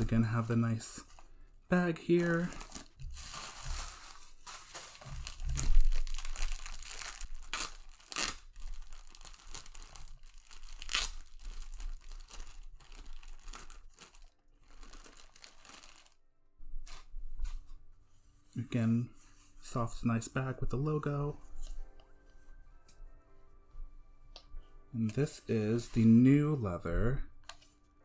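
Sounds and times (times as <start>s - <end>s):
plastic bag crinkling: 0.0s - 16.2s
plastic tearing: 2.1s - 16.2s.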